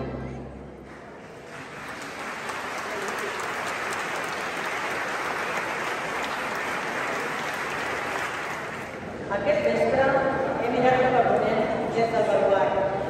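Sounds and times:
music: 0.0s - 1.0s
crowd applauding: 0.8s - 9.2s.

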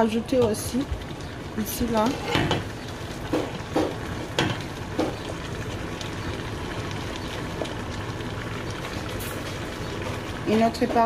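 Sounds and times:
simmering pot sizzling: 0.0s - 11.0s
peppers knocking into pot: 2.4s - 5.3s.

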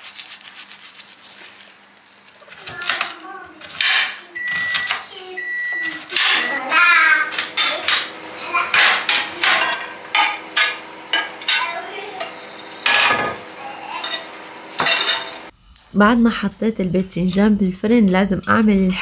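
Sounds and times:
high electronic appliance beep: 4.3s - 6.8s
cookware clattering: 6.1s - 6.6s, 7.3s - 15.5s.

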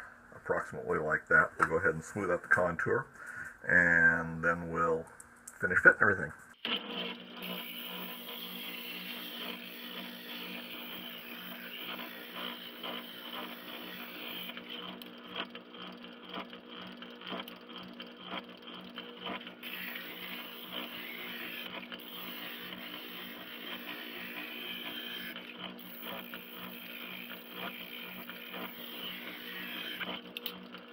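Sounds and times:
sander motor hum: 6.6s - 30.9s
scratchy grinding of sanding: 19.0s - 30.2s.

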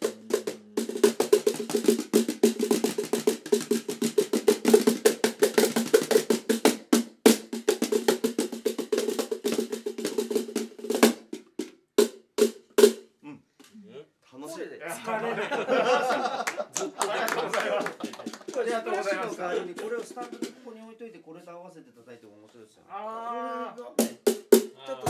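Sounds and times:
cajon slaps: 0.0s - 12.9s, 17.0s - 20.6s.

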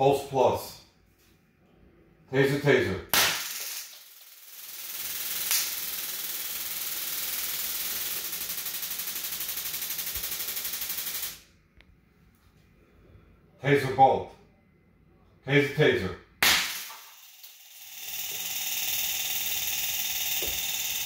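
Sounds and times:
electric pulses crackling: 3.2s - 11.4s.

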